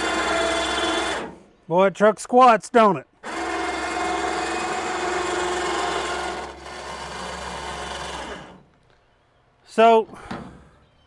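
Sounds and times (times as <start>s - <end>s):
electric winch motor whine: 0.0s - 1.4s, 3.2s - 8.7s.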